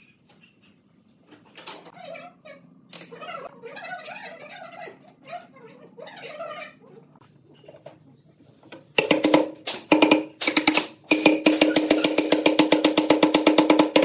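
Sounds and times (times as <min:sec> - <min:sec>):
wooden mallet striking a board: 0:09.0 - 0:14.0.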